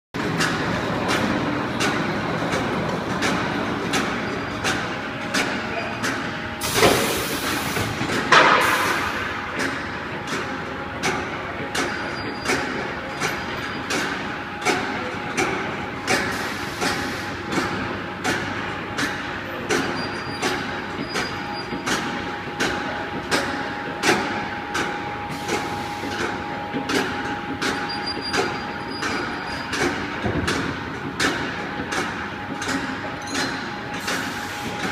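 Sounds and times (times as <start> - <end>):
steady machine noise: 0.2 - 34.9
loud metal clank: 8.3 - 9.8.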